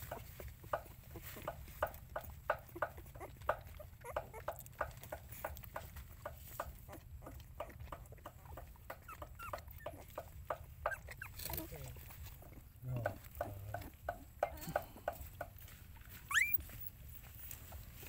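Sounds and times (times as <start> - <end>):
puppies whimpering: 2.5 - 5.0, 6.7 - 14.4, 16.2 - 17.5.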